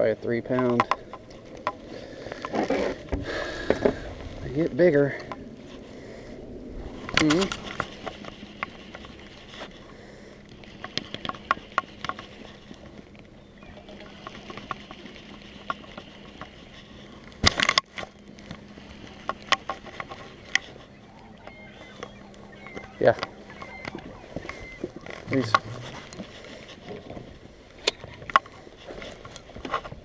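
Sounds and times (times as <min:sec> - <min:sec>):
faint steady hum: 0:00.0 - 0:30.0.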